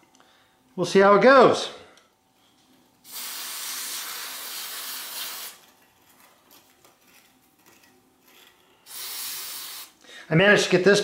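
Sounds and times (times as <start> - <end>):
aerosol spray can hissing: 3.0 - 5.6, 8.9 - 10.0.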